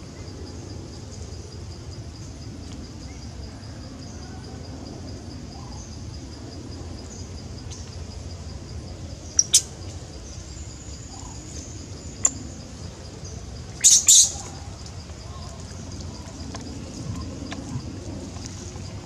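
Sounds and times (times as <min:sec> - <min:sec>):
pulsing insect trill: 0:00.0 - 0:19.0
low background rumble: 0:04.7 - 0:19.0.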